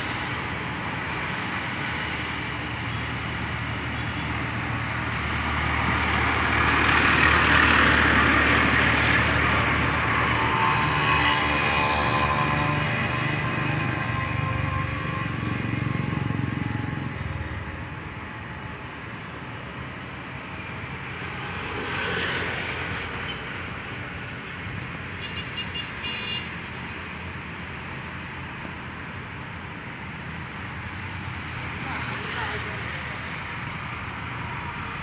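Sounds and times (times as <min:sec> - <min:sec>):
road traffic passing: 0:00.0 - 0:35.0
high horn toots: 0:10.1 - 0:16.8.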